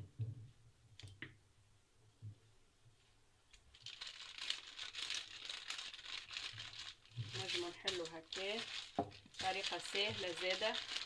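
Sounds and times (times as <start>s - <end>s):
baking paper crinkling: 3.6s - 11.0s.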